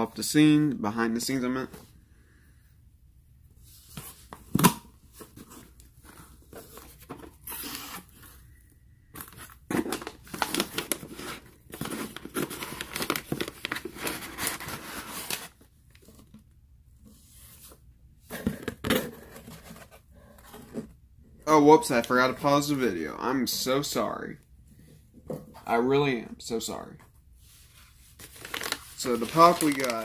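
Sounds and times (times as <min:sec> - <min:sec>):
packaging tearing and crinkling: 0:09.2 - 0:15.6, 0:28.2 - 0:30.0.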